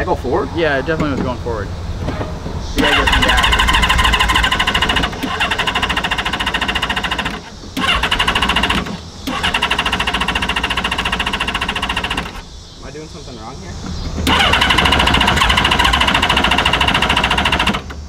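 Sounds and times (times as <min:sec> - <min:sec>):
engine starter cranking: 0:02.8 - 0:12.5, 0:13.9 - 0:18.0.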